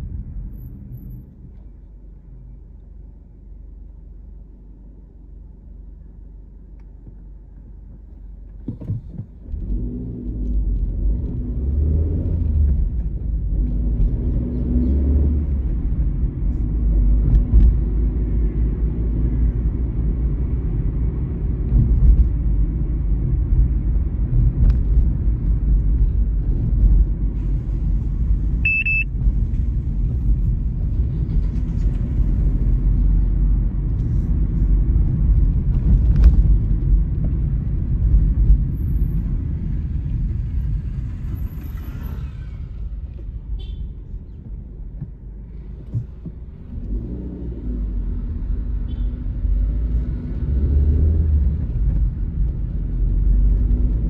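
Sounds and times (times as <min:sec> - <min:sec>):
car driving rumble: 0:00.0 - 0:54.0
short high beep: 0:28.6 - 0:29.1.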